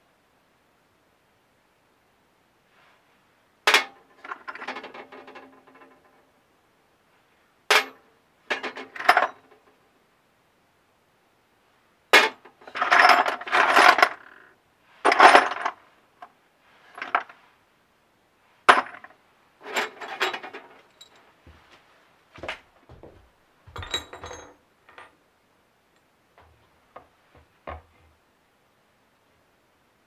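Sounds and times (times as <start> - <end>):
metal screws clinking in a drawer: 8.5 - 9.5, 12.6 - 14.2, 15.1 - 15.8, 18.7 - 21.3, 23.7 - 25.1.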